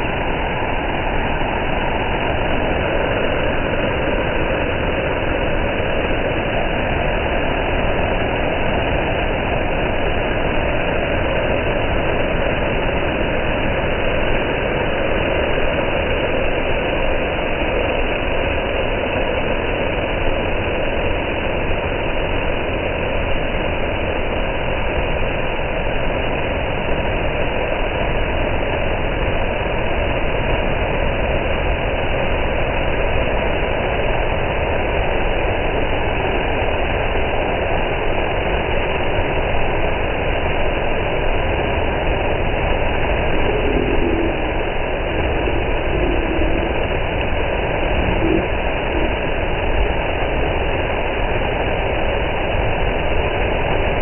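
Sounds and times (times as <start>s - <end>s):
water rushing over rocks: 0.0s - 54.0s.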